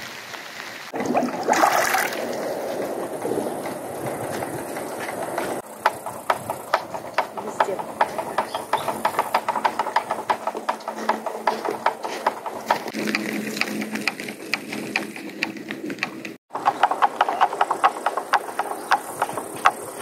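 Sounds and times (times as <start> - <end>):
light rain pattering: 0.0 - 5.6.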